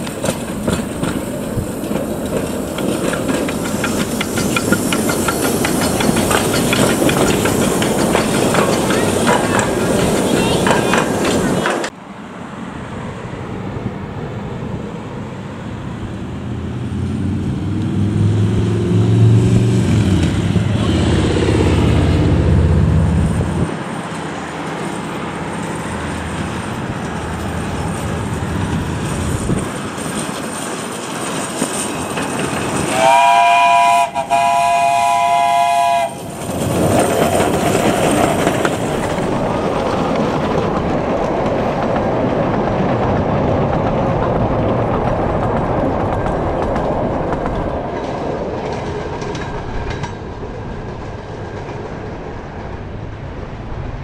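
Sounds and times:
train clattering past: 0.0 - 54.0
steam locomotive whistle: 32.9 - 36.3.

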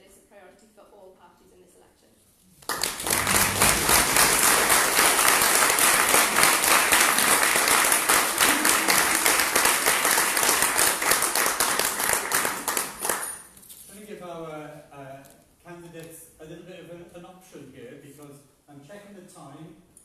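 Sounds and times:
audience applauding: 2.6 - 13.4.

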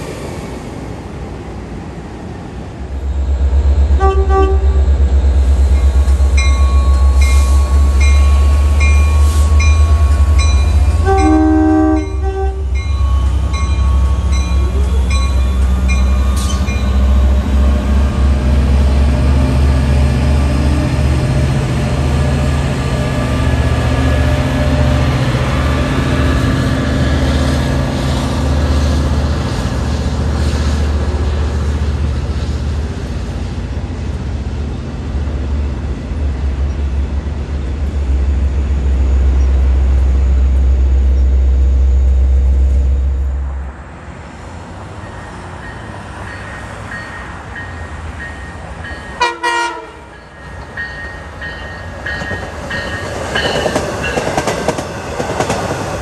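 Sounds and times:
diesel locomotive rumble: 0.0 - 56.0
train horn blasts: 4.0 - 4.9, 9.6 - 15.6, 49.2 - 50.2
locomotive bell ringing: 5.7 - 17.5, 45.0 - 54.4.

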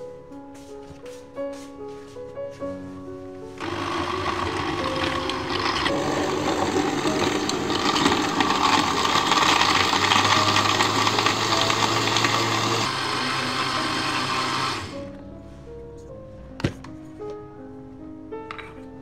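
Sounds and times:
blender blending ice: 3.6 - 15.1.

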